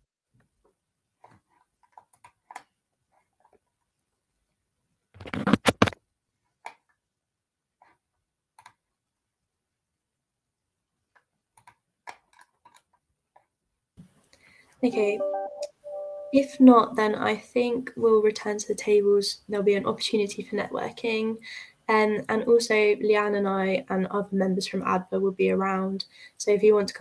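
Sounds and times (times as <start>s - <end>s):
keyboard and mouse clicks: 1.2s - 2.8s, 8.6s - 8.8s, 11.1s - 13.5s.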